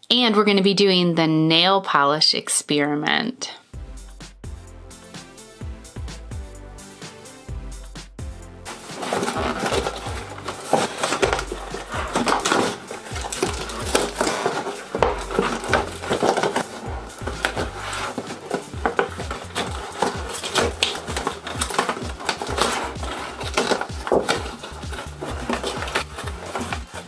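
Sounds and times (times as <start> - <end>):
plastic packaging crackling: 8.6 - 27.0.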